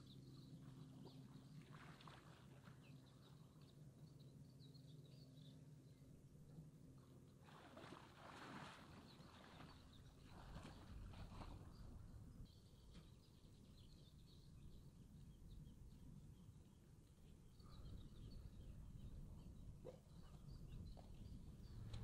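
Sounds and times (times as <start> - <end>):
faint low hum: 0.0 - 22.0.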